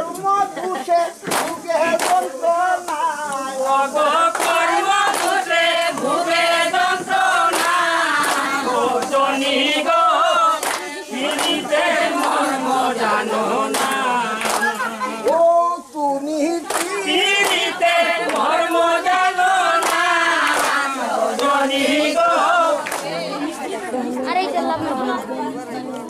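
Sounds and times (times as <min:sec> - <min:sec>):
women singing in chorus: 0:00.5 - 0:26.0
sharp claps: 0:01.2 - 0:09.6, 0:10.5 - 0:12.5, 0:13.7 - 0:15.4, 0:16.6 - 0:21.6, 0:22.8 - 0:23.2.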